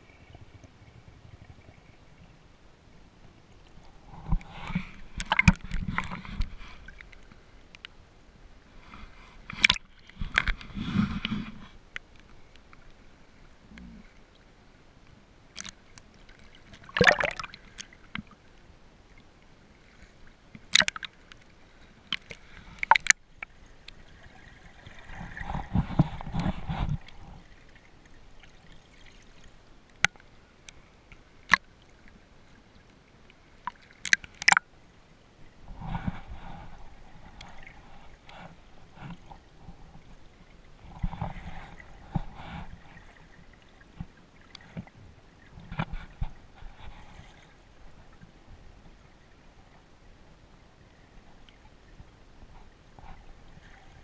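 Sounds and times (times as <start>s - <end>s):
water sloshing and gurgling: 0.0s - 54.0s
churning water: 15.5s - 18.5s, 20.4s - 30.2s, 33.4s - 34.7s.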